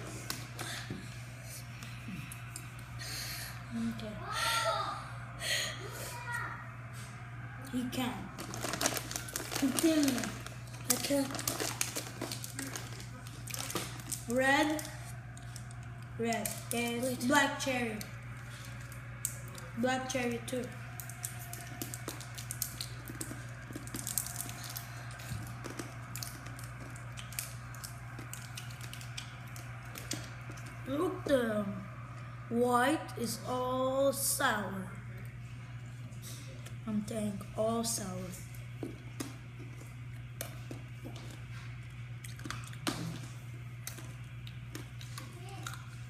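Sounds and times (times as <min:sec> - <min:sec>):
steady low hum: 0:00.0 - 0:46.0
candy wrappers crinkling: 0:07.8 - 0:17.4, 0:18.0 - 0:19.7, 0:20.7 - 0:30.8
wet mouth clicks and smacks: 0:25.7 - 0:30.7, 0:42.2 - 0:43.1.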